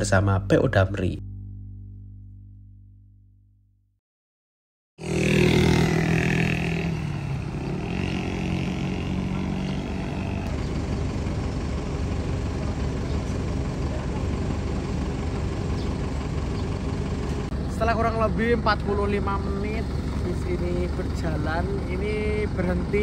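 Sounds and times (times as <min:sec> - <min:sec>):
vehicle engine drone: 0:05.0 - 0:23.0.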